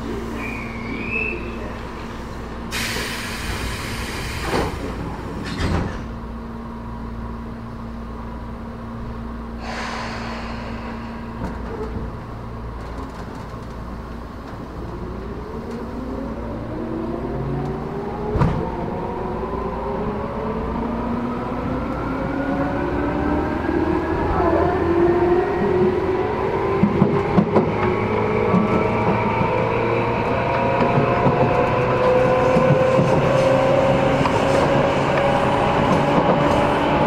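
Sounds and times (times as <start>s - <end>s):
train equipment hum: 0.0s - 37.0s
air hissing bursts: 2.7s - 4.7s, 9.6s - 11.4s.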